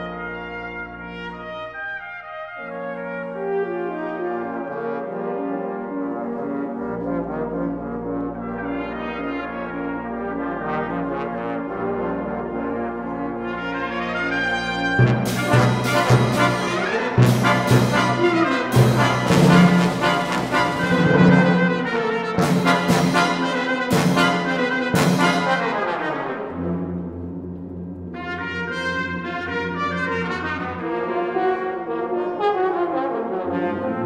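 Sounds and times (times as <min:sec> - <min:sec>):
brass ensemble playing: 0:00.0 - 0:27.4, 0:28.1 - 0:34.0
loud percussion strikes: 0:15.2 - 0:25.6.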